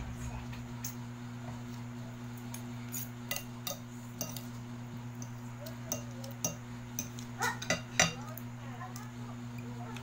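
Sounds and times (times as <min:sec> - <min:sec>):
low room hum: 0:00.0 - 0:10.0
cutlery clinking on glass plate: 0:02.9 - 0:04.5.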